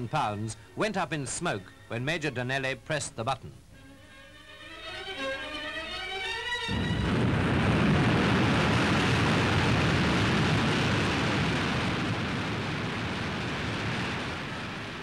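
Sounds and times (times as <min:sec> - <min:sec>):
explosion roar: 0:06.7 - 0:15.0.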